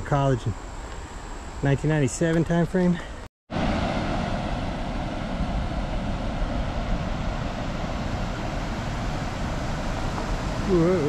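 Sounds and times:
creek water rushing: 3.5s - 11.0s.

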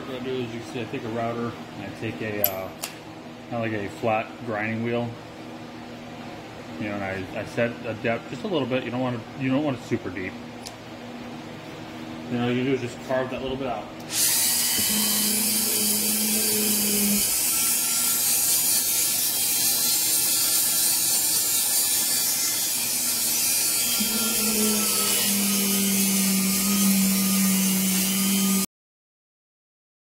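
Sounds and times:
router grinding whir: 14.0s - 28.7s.

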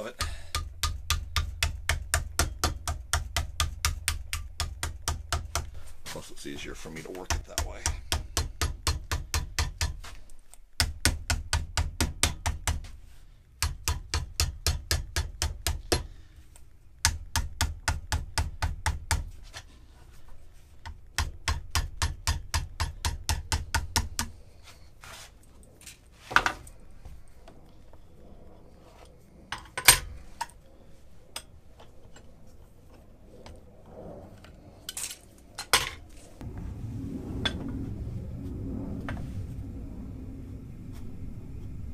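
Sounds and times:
mallet hammering aluminium sheet: 0.0s - 5.7s, 7.3s - 10.0s, 13.6s - 16.0s.

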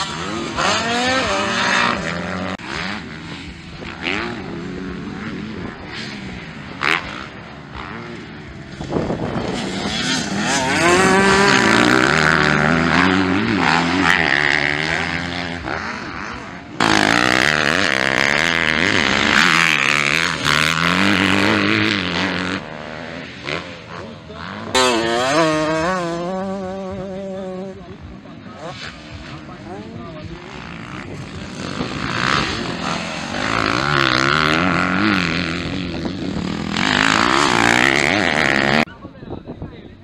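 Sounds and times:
dirt bike engines revving: 0.0s - 40.0s.

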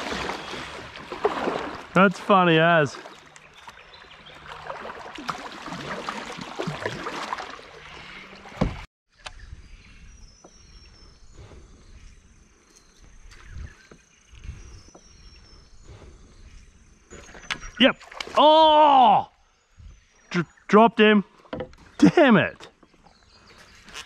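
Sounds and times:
kayak paddle strokes: 0.0s - 8.9s
water lapping at hull: 0.0s - 8.9s
water splashing and dripping: 0.0s - 8.9s, 17.4s - 18.6s.

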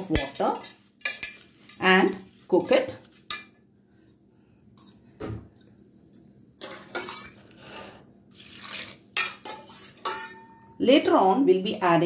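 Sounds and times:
metal spoon clinking on pot: 0.1s - 1.8s, 9.2s - 10.8s
water pouring and splashing: 8.3s - 9.2s.

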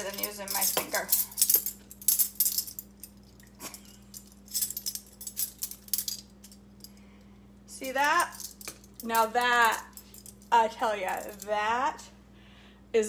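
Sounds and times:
metal measuring spoons clinking: 0.0s - 6.6s.

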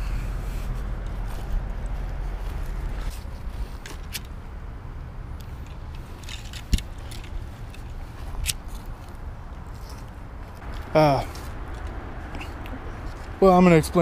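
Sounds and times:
camera handling rumble: 1.0s - 4.4s, 5.4s - 12.0s.

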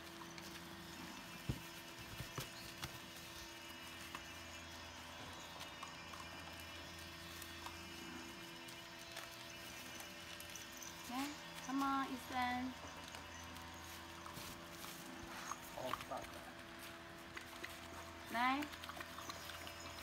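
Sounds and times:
puppies eating kibble from metal tray: 3.3s - 20.0s.

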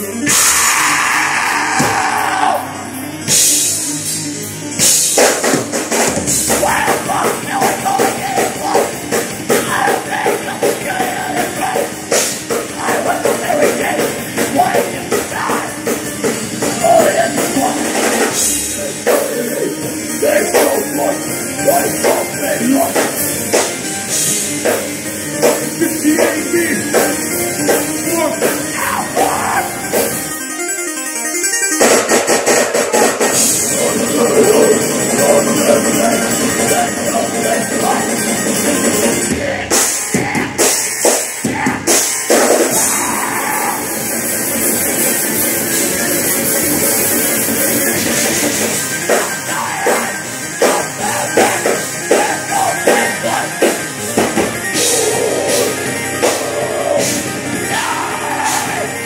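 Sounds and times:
live rock band playing: 0.0s - 59.0s
drum kit hitting: 0.2s - 0.8s, 1.6s - 19.4s, 22.0s - 28.9s, 47.8s - 59.0s.

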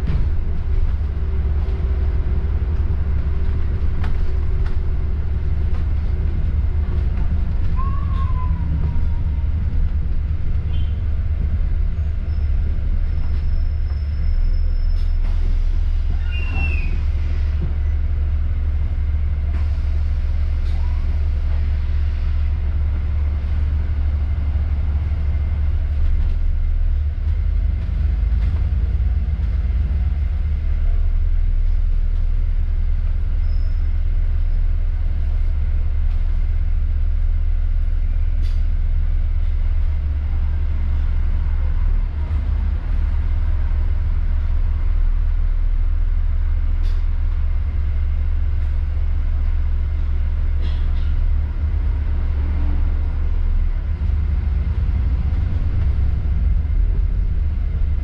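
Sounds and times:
bus engine and road rumble: 0.0s - 58.0s
faint squeal: 7.6s - 9.5s, 12.0s - 15.4s, 16.1s - 17.1s, 33.4s - 34.0s.

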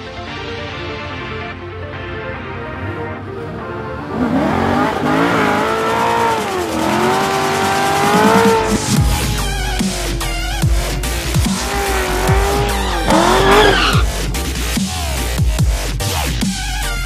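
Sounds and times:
background music: 0.0s - 17.0s
car engine running: 2.8s - 17.0s
tyres squealing: 4.2s - 14.3s
loud low rumble: 7.2s - 15.6s.

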